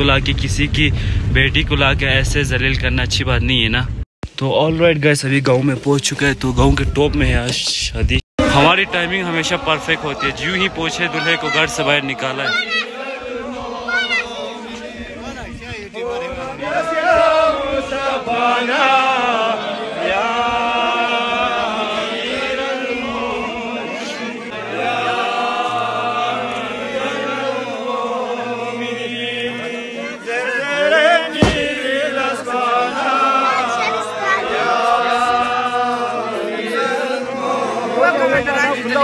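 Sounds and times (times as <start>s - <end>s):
crowd chanting in chorus: 8.4s - 39.0s
sharp knock: 31.4s - 31.8s.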